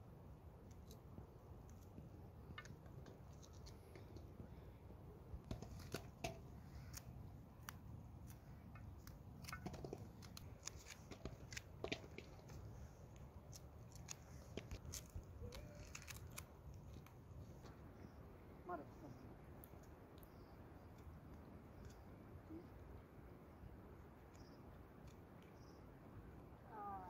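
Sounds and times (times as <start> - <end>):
knife cutting okra pods: 5.5 - 17.1.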